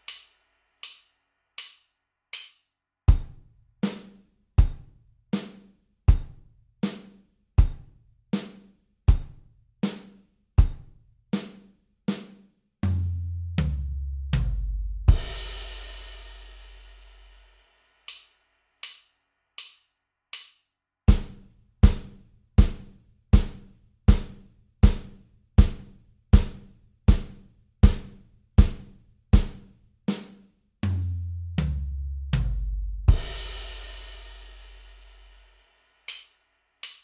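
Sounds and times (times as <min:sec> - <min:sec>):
drum kit groove: 0:00.0 - 0:01.0, 0:02.4 - 0:17.4, 0:20.4 - 0:35.4, 0:36.1 - 0:37.0
hi-hat count-in clicks: 0:00.0 - 0:03.3, 0:18.0 - 0:29.6, 0:36.1 - 0:37.0.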